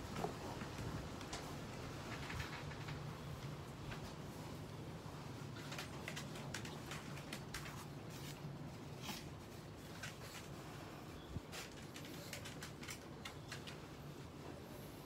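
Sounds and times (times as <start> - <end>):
dog claws clicking on crate: 5.6 - 8.0, 11.5 - 13.8.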